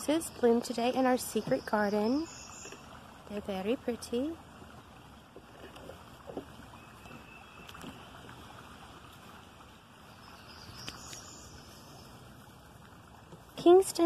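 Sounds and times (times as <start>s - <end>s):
soft rustles and ticks: 5.3s - 8.4s.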